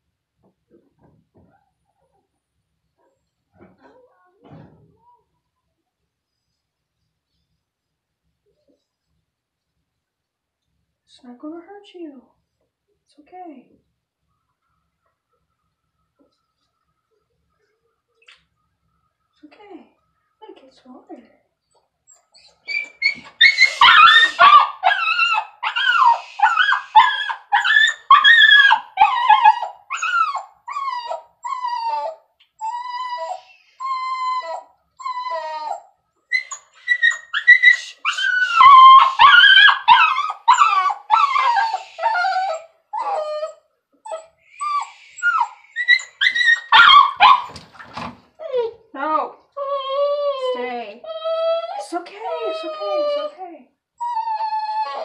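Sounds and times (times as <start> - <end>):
small dog yelping whines: 22.1 - 47.6, 54.0 - 55.0.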